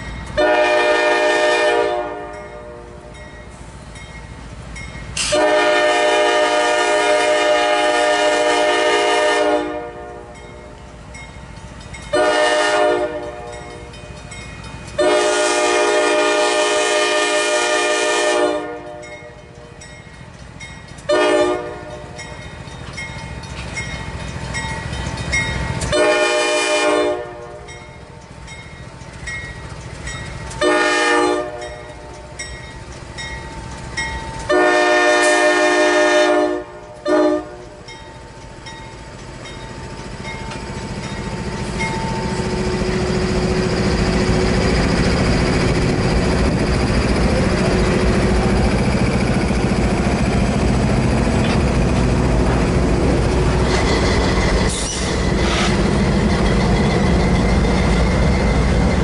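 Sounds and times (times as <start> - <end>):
train rumbling past: 0.0 - 59.0
locomotive air horn blasts: 0.4 - 3.0, 5.2 - 10.3, 12.1 - 13.6, 15.0 - 19.1, 21.1 - 22.2, 25.9 - 27.6, 30.6 - 31.7, 34.5 - 37.7.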